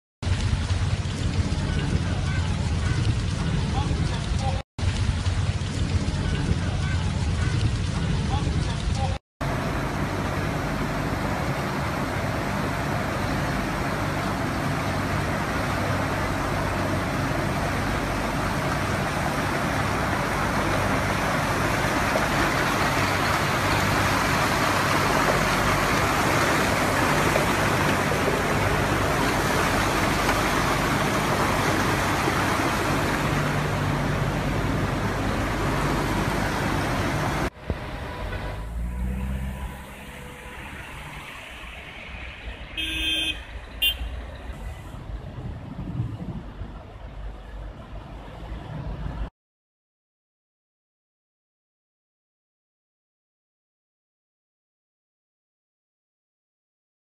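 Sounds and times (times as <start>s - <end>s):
floodwater rushing: 0.2s - 45.6s
road traffic noise: 0.2s - 49.3s.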